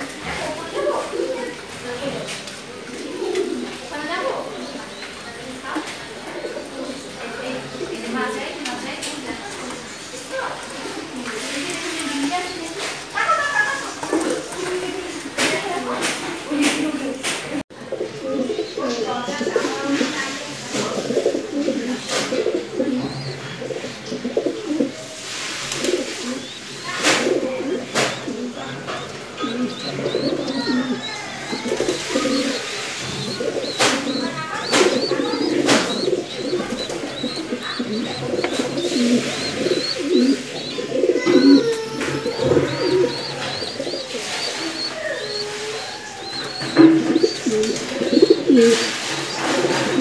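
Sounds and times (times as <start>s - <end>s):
pigeons cooing: 0.0s - 50.0s
faint high chirps: 25.0s - 49.6s.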